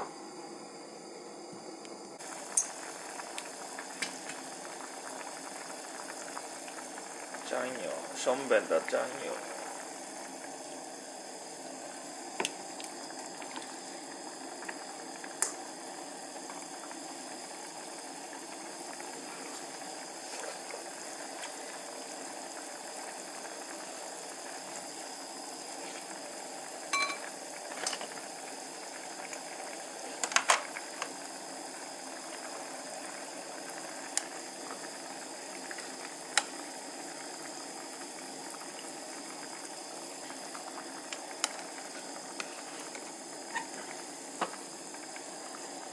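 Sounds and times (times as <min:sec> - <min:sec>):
broth bubbling in a pan: 0:00.0 - 0:45.9
rice cooker beep: 0:26.9 - 0:27.3.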